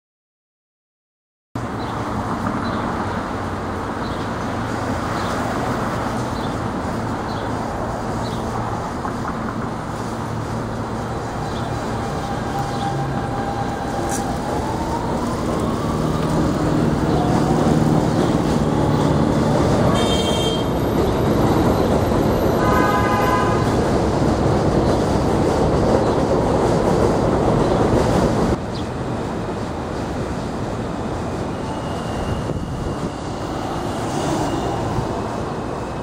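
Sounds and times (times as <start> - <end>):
subway train rumble and rail noise: 1.6 - 36.0
train horn toot: 19.8 - 20.9, 22.3 - 23.8.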